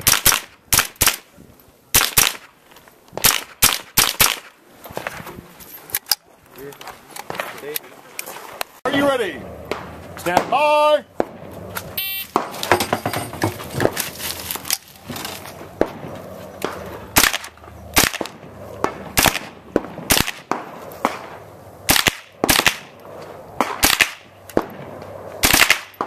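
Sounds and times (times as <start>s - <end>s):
rifle shots: 0.0s - 1.3s, 1.9s - 2.5s, 3.2s - 4.6s, 12.3s - 12.8s, 15.8s - 23.0s, 23.6s - 26.0s.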